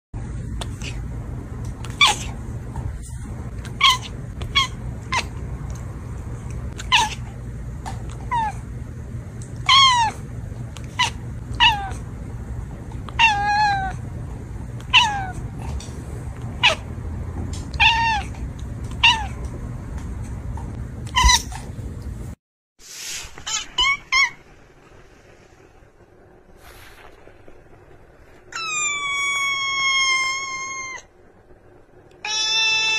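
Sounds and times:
low hum: 0:00.2 - 0:32.3
cat meowing: 0:03.7 - 0:05.4, 0:09.6 - 0:10.2, 0:10.8 - 0:12.0, 0:13.1 - 0:14.0, 0:14.8 - 0:15.4, 0:17.7 - 0:19.5, 0:21.1 - 0:21.6, 0:28.5 - 0:31.1, 0:32.2 - 0:32.9.

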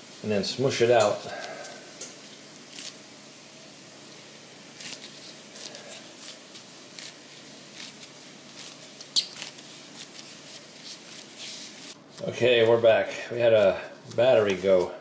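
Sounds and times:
hands squishing pizza dough: 0:00.8 - 0:03.1, 0:04.6 - 0:12.8, 0:13.4 - 0:15.0.

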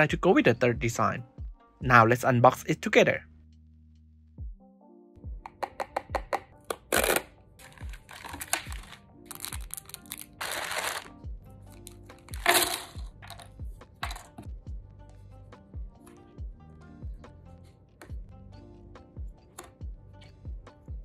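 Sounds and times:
background music with deep beat: 0:00.0 - 0:02.0, 0:04.4 - 0:09.8, 0:10.4 - 0:21.0
cellophane bag tearing and crinkling: 0:06.8 - 0:11.2, 0:12.3 - 0:13.0.

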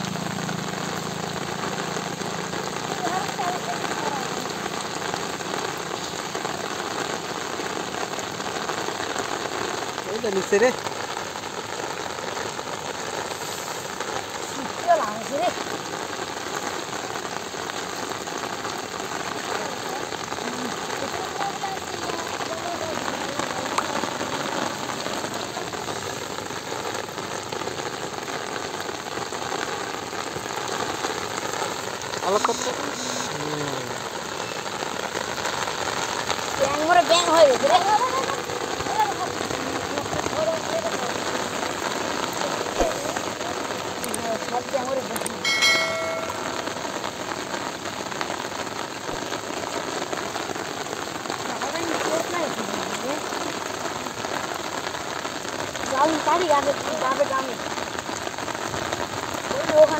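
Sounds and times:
rain falling on water: 0:00.0 - 0:59.9
short ringing chime: 0:45.4 - 0:46.8.

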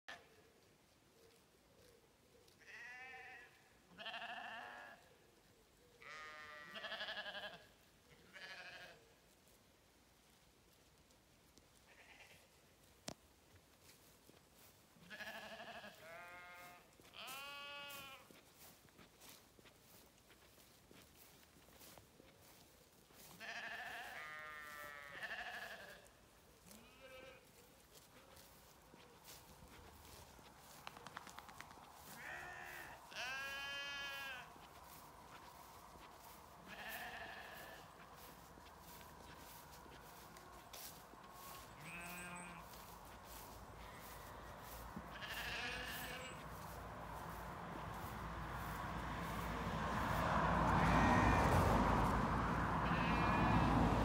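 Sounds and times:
sheep bleating: 0:02.6 - 0:05.1, 0:06.0 - 0:09.0, 0:11.9 - 0:12.5, 0:15.0 - 0:18.4, 0:23.2 - 0:28.5, 0:32.0 - 0:46.7, 0:50.7 - 0:51.8, 0:52.8 - 0:53.9.

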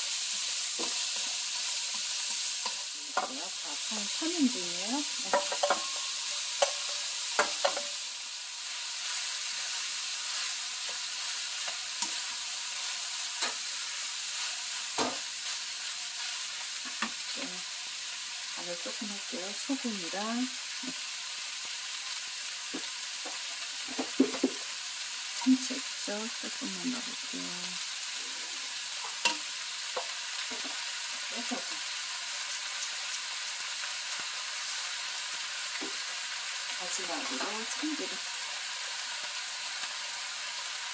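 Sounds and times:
spatula stirring food: 0:00.0 - 0:08.0, 0:08.6 - 0:17.4
fried rice sizzling in a pan: 0:00.0 - 0:40.9
spatula knocking against pan: 0:05.3 - 0:05.9.

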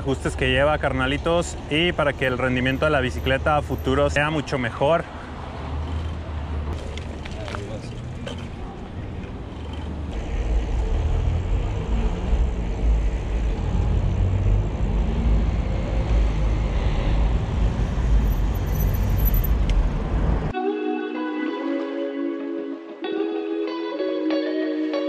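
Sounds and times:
cars passing: 0:00.0 - 0:20.6
guitar music: 0:20.6 - 0:25.0.

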